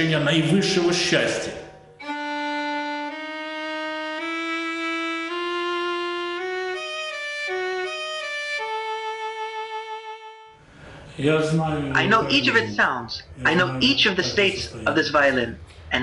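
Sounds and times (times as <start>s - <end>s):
solo violin melody: 2.0s - 10.6s.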